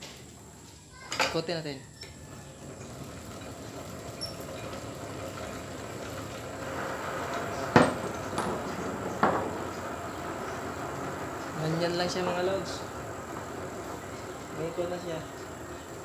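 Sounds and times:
bicycle chain whirring: 0.0 - 16.0
sharp knocks: 7.7 - 9.7.

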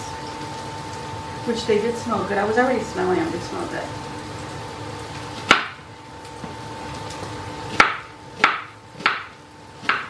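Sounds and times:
knife chopping onion on board: 5.4 - 5.8, 7.7 - 10.0.

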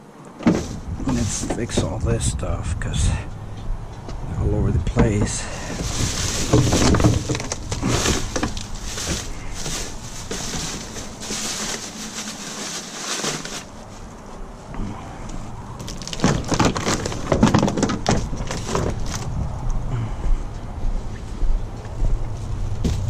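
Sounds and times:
plastic bottles shifting: 0.3 - 2.0, 4.8 - 14.2, 15.8 - 19.3
plastic bags crinkling: 5.2 - 14.1, 15.8 - 19.3.

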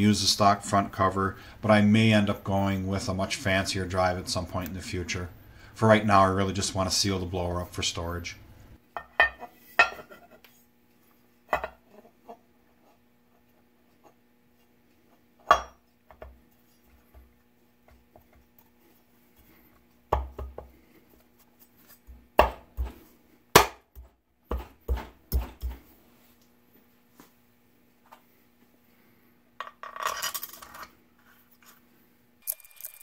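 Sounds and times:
metal parts and tools clinking: 32.4 - 33.0.

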